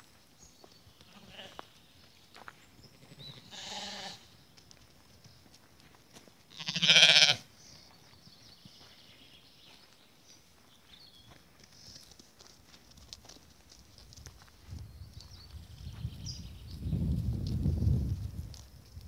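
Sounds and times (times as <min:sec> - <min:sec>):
sheep bleating: 0:01.1 - 0:01.6, 0:03.3 - 0:04.2, 0:06.5 - 0:07.4.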